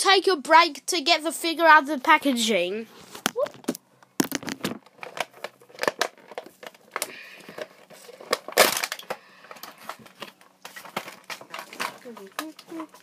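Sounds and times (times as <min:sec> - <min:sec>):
plastic packaging crinkling: 0:03.0 - 0:13.0
plastic packaging crunch: 0:03.2 - 0:13.0.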